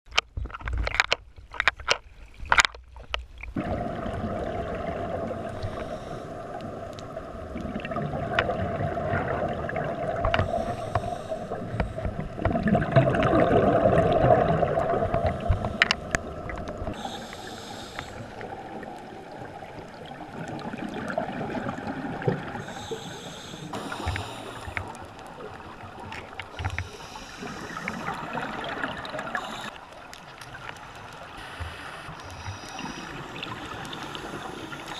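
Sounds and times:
water sloshing and splashing: 0.1 - 34.9
exhaled air bubbling: 3.4 - 34.9
diver breathing through regulator: 5.4 - 6.6, 10.3 - 12.4, 15.1 - 16.2, 16.9 - 18.6, 22.5 - 25.1, 26.5 - 29.9, 31.2 - 34.9.

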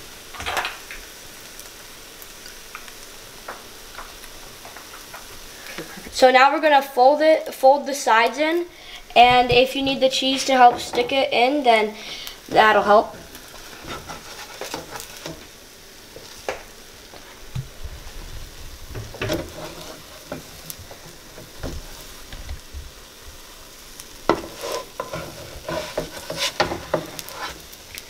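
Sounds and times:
eggs sizzling in a frying pan: 0.0 - 28.0
spatula scraping and tapping pan: 13.4 - 15.5, 19.0 - 22.2, 24.2 - 27.7.

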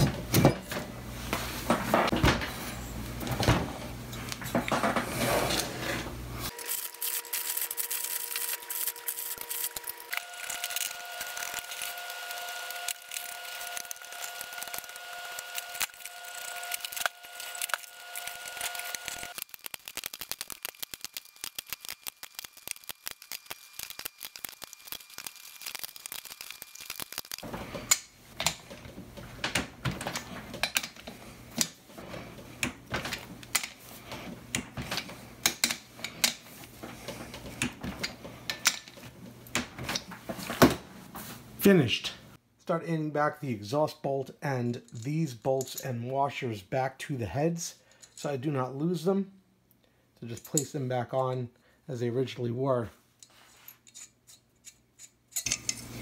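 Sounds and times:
metal nuts clicking and rattling: 53.2 - 55.9.

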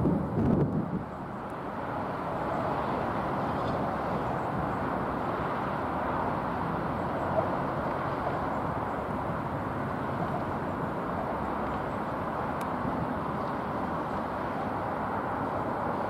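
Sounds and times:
wind buffeting microphone: 0.0 - 1.4
distant traffic rumble: 0.0 - 16.0
rail noise: 0.0 - 16.0.

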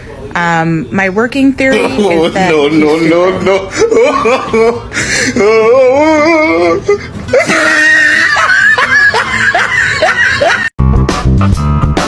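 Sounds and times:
laugh-like cries: 1.7 - 10.7
wavering vocal wail: 3.2 - 9.2.

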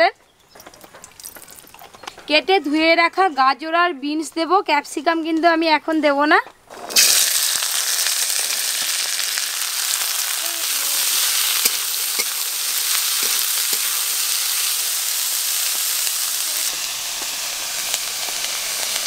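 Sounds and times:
vegetables sizzling in oil: 6.8 - 19.0.

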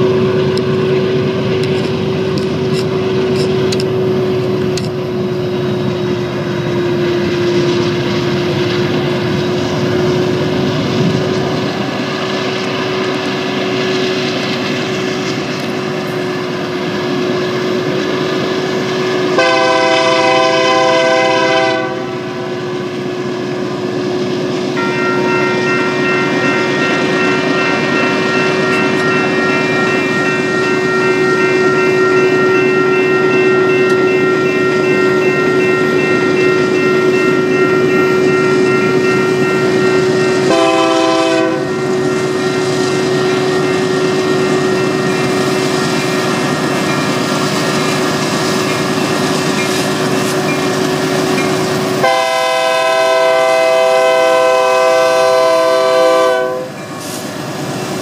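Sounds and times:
crossing warning bell ringing: 0.0 - 23.8, 24.6 - 57.1
diesel locomotives rumbling: 0.0 - 58.0
train air horn blasts: 19.3 - 22.6, 24.8 - 27.2, 40.3 - 43.5, 52.0 - 56.8.

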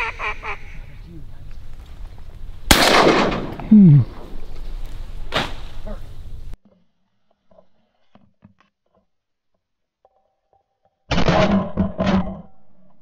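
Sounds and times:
shotgun shots: 2.7 - 4.4.

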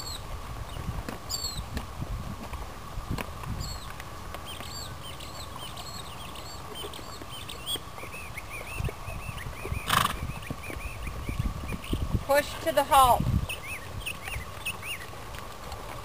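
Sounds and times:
small birds chirping: 0.0 - 1.8, 3.5 - 15.3.

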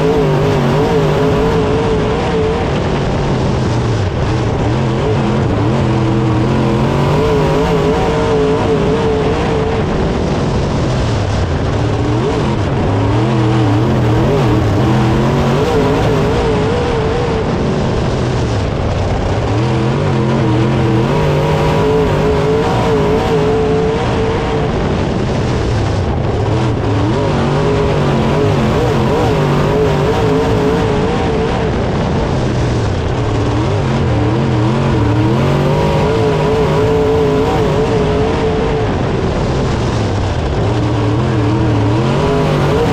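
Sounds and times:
race car engine revving: 0.0 - 42.9.

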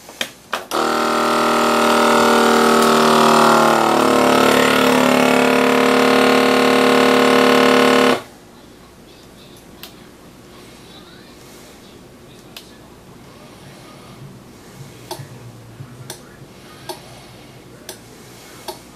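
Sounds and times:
vacuum sealer pump running: 0.7 - 8.3.

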